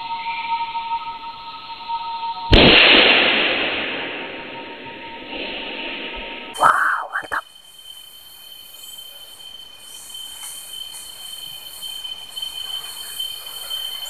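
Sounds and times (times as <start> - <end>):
insects buzzing: 3.9 - 14.0.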